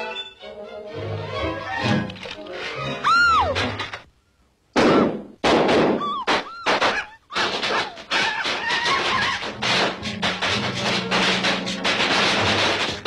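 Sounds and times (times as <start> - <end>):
thumps and clattering effects: 1.7 - 4.1, 5.1 - 13.0
falling wailing cry: 3.0 - 3.6, 6.0 - 9.5.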